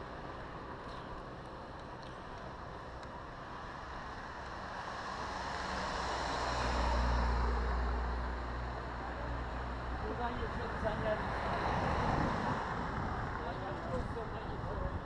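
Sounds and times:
car passing by: 4.2 - 14.0.

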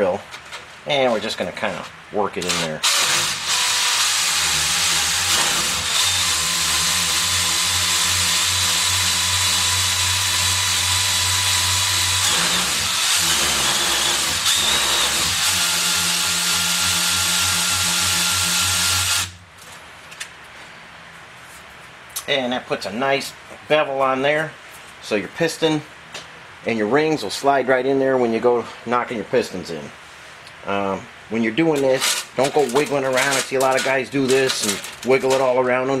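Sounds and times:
drill sanding metal: 2.8 - 19.3.

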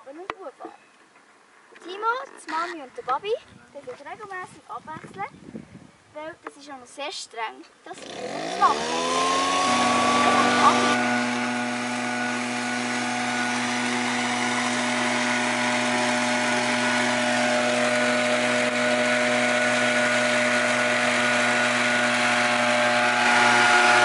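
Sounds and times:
small petrol engine running: 7.9 - 24.0.

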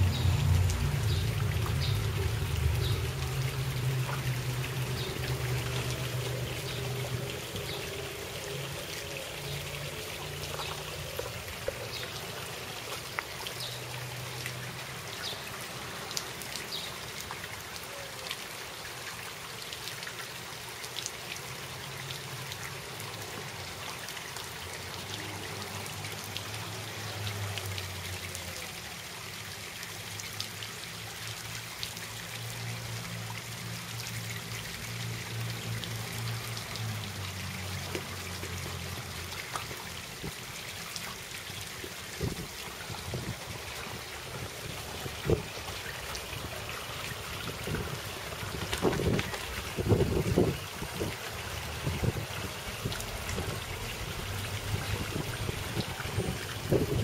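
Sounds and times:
sprinkler spraying water on asphalt: 0.0 - 17.7.

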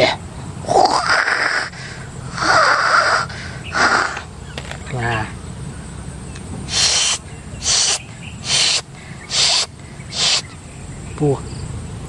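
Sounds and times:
person hissing: 0.8 - 4.3, 6.7 - 10.5.

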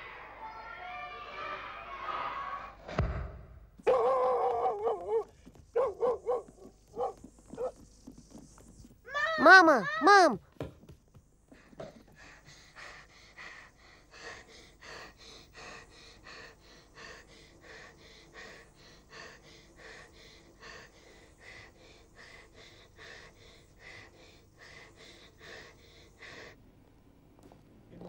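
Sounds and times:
person gasping breaths: 11.5 - 26.6.

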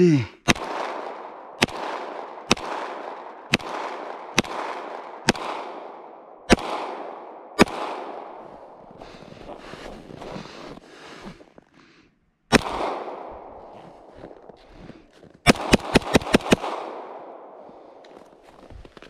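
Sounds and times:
pistol shots with echo: 0.4 - 8.8, 12.5 - 14.1, 15.4 - 18.0.

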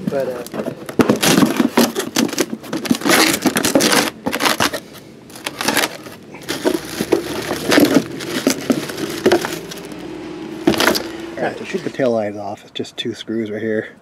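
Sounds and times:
plastic bag crinkling: 0.0 - 10.0, 10.6 - 11.2
cardboard box flaps opening: 5.4 - 10.0.

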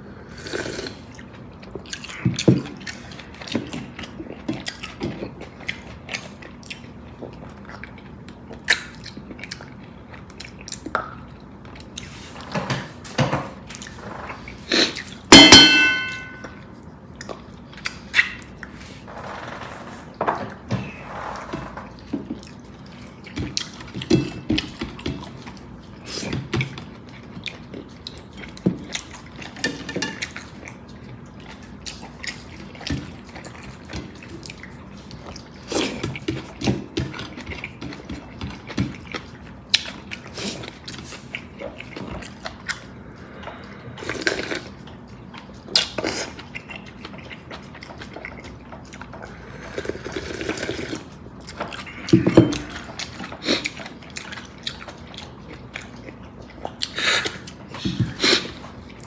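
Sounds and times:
chewing: 0.2 - 13.0, 13.6 - 15.3, 16.4 - 19.1, 20.0 - 59.0
utensil clinking on bowl: 15.3 - 16.6
slurping broth: 43.0 - 44.8, 49.2 - 51.1.

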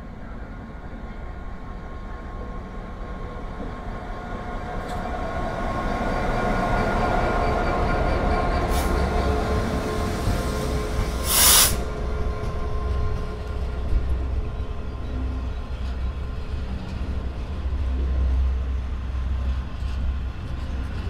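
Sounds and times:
diesel locomotive engine: 0.0 - 21.0
short loud hiss: 11.2 - 11.9.

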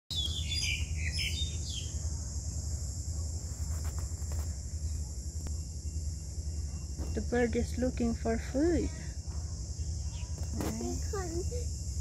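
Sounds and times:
high insect drone: 0.1 - 12.0
small birds chirping: 0.1 - 12.0.

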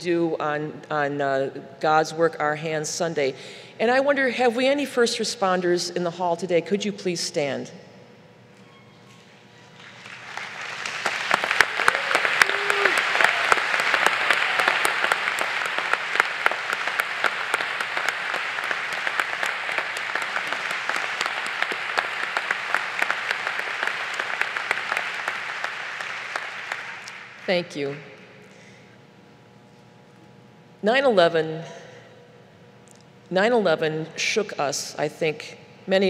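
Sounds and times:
audience applauding: 9.8 - 28.0.

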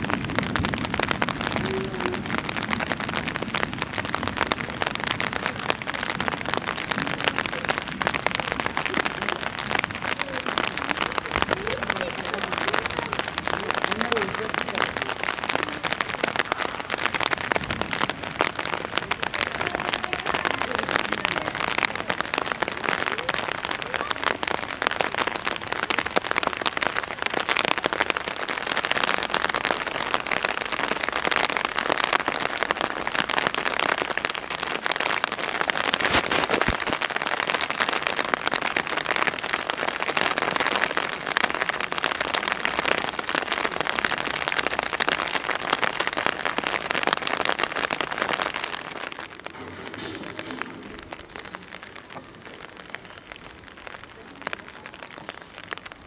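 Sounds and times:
heavy rain on concrete: 0.0 - 56.0.

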